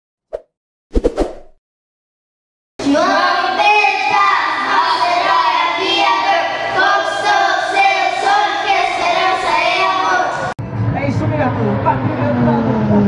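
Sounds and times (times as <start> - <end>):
children singing into microphones: 2.8 - 10.5.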